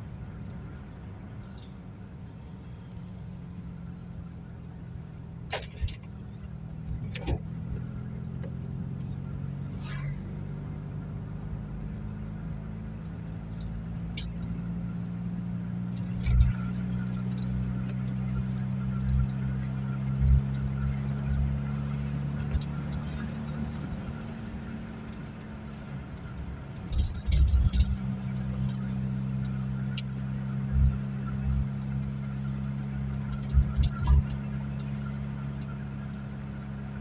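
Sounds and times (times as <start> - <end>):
car engine droning from cabin: 0.0 - 37.0.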